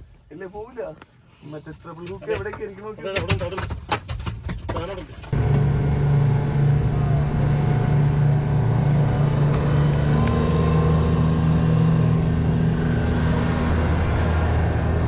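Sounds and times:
boat engine humming: 5.3s - 15.0s.

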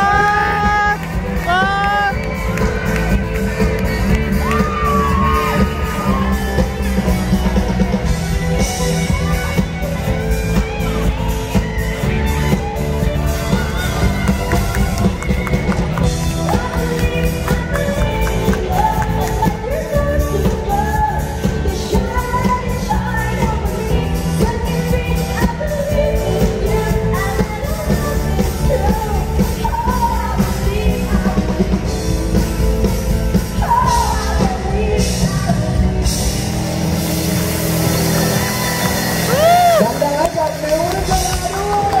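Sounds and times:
woman singing: 0.0s - 2.4s, 15.4s - 36.4s
live rock band playing: 0.0s - 42.0s.

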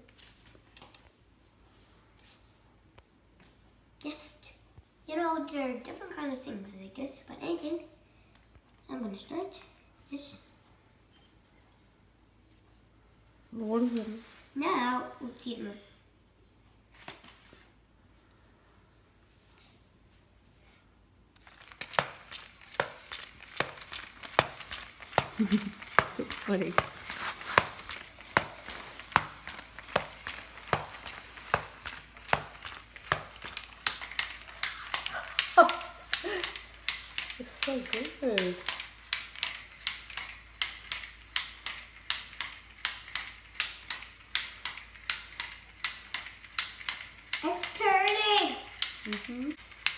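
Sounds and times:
toy robot car motor running: 21.4s - 49.9s.

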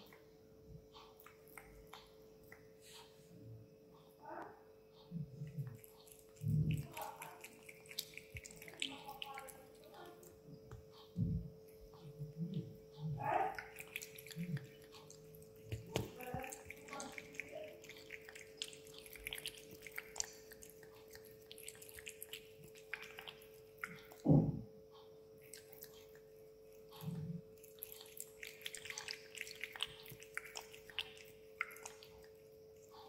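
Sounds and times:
faint hum: 0.0s - 33.0s
cat lapping water: 5.2s - 10.5s, 11.1s - 24.4s, 25.4s - 33.0s
low thump: 24.2s - 24.7s.

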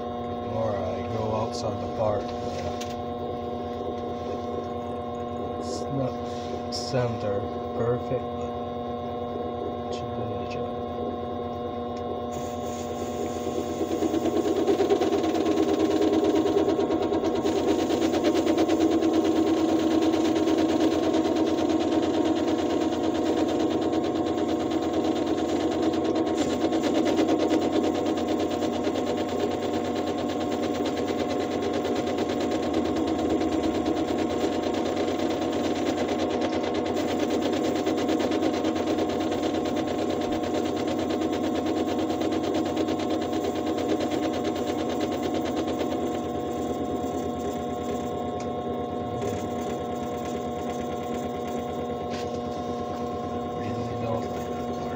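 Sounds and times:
metal lathe motor whine: 0.0s - 54.9s
fast steady rattle of cutting: 12.3s - 54.9s.

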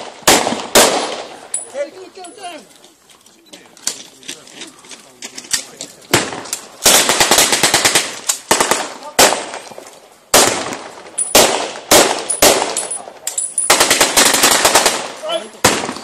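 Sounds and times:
single rifle shots: 0.0s - 1.4s, 6.1s - 9.7s, 10.3s - 13.0s, 13.7s - 16.0s
rapid bursts of gunfire: 6.1s - 9.6s, 13.7s - 16.0s.

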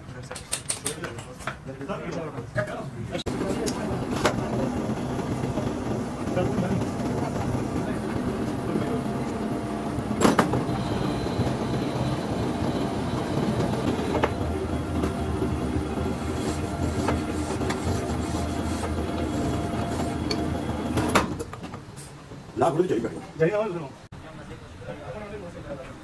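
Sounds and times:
engine running: 3.3s - 21.3s.

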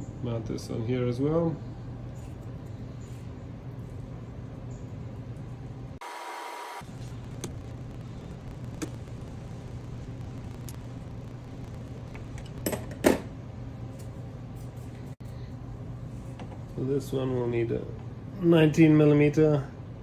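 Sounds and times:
steady low hum: 0.0s - 6.0s, 6.6s - 20.0s.

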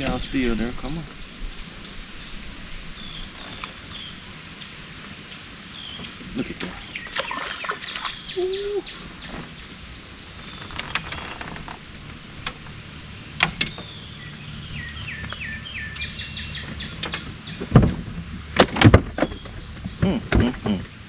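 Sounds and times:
songbirds singing: 0.0s - 21.0s
fish splashing at surface: 6.6s - 8.3s.

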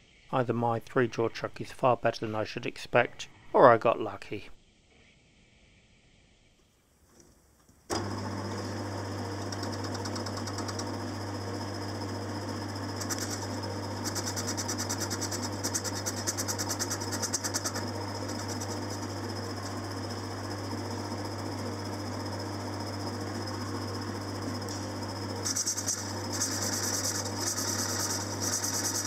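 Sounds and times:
metal lathe humming: 7.9s - 29.0s
fast ticking from cutting tool: 13.0s - 19.1s.

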